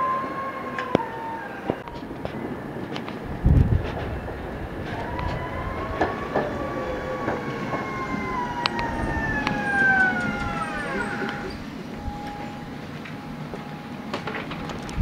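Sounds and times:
tram motor whine sliding down: 0.0s - 15.0s
wheel clicks on track: 7.2s - 11.6s.

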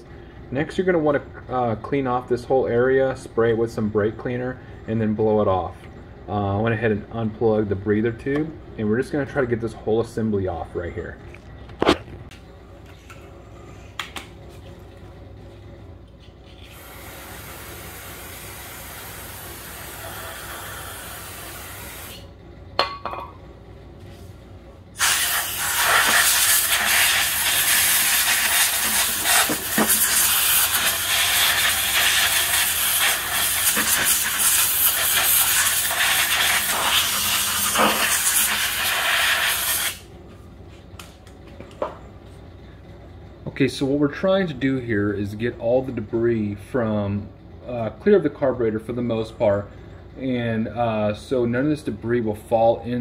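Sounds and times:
aerosol spray hissing: 25.0s - 40.0s
compressed air blow gun hissing: 25.0s - 40.0s.

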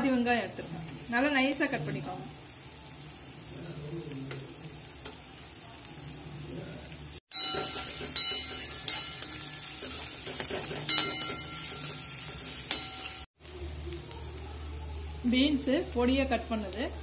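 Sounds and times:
onion sizzling in hot oil: 0.0s - 17.0s
spatula scraping metal pan: 7.5s - 13.2s.

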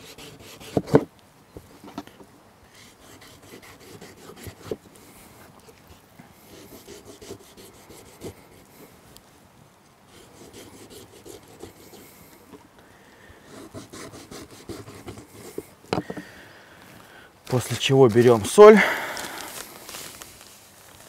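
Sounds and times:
knife rasping through meat skin: 2.9s - 4.8s.

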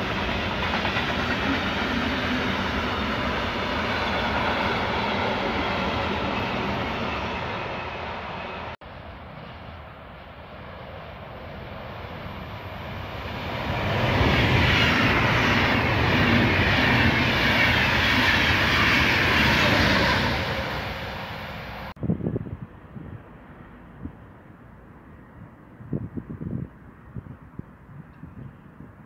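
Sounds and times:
freight train wagons rumbling: 0.0s - 8.8s
electric train passing close by: 0.0s - 28.7s.

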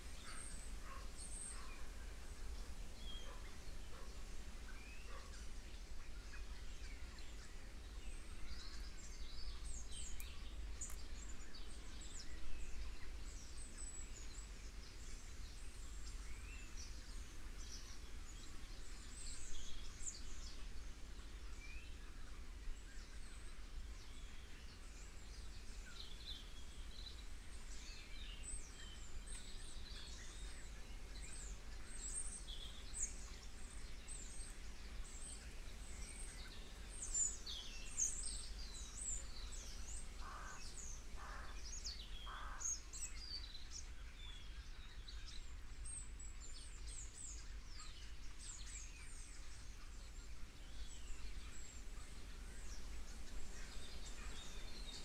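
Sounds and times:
small birds chirping: 0.0s - 55.0s
lower bird calls: 34.2s - 43.4s.

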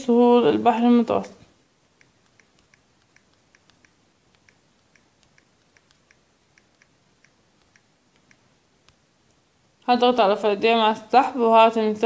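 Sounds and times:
smartphone keyboard clicks: 2.0s - 9.0s.

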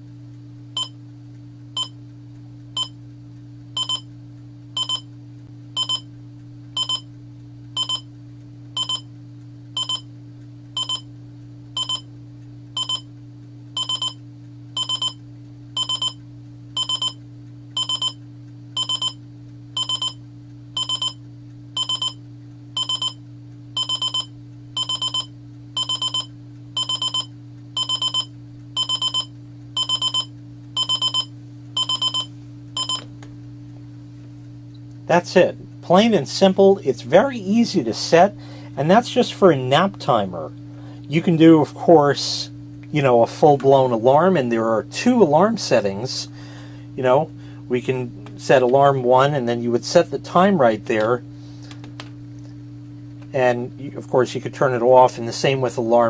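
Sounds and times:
steady low hum: 0.0s - 56.0s
high-pitched alarm beeps: 2.8s - 3.0s, 3.8s - 4.1s, 4.8s - 5.1s, 5.8s - 6.1s, 6.8s - 7.1s, 7.8s - 8.1s, 8.8s - 9.1s, 9.8s - 10.1s, 10.8s - 11.1s, 11.8s - 12.1s, 12.8s - 13.1s, 13.8s - 14.2s, 14.8s - 15.2s, 15.8s - 16.2s, 16.8s - 17.2s, 17.8s - 18.2s, 18.8s - 19.2s, 19.8s - 20.2s, 20.8s - 21.2s, 21.8s - 22.2s, 22.8s - 23.2s, 23.8s - 33.0s.

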